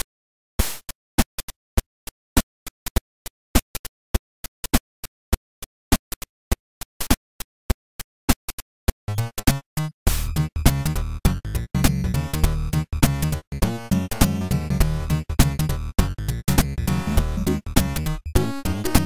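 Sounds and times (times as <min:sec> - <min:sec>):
music with low beat: 0:09.1 - 0:19.0.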